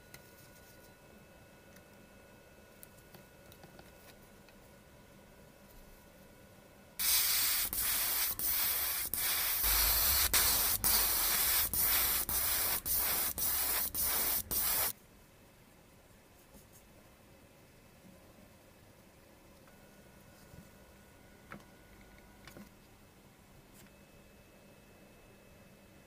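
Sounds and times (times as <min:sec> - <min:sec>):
airbrush spraying hiss: 0:07.0 - 0:14.9.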